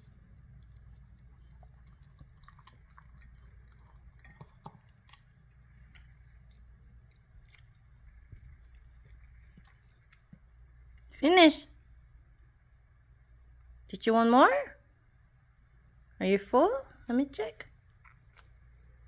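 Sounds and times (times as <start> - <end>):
dog licking and eating: 0.0 - 11.2.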